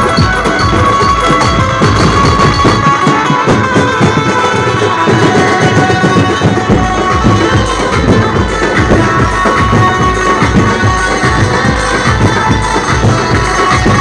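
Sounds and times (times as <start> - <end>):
loud dance music: 5.4 - 14.0.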